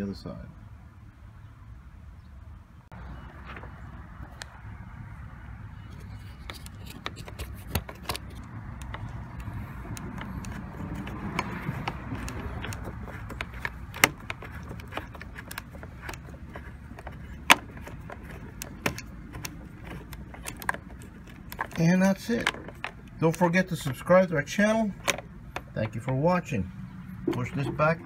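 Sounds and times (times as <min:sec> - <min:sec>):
screwdriver metal clicks and scrapes: 0:05.8 - 0:24.2
sharp clicks: 0:05.9 - 0:16.3.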